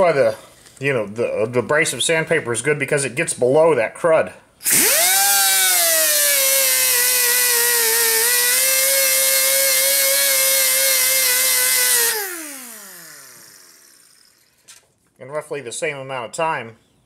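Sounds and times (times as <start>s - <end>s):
rotary sander grinding metal: 4.6s - 14.5s.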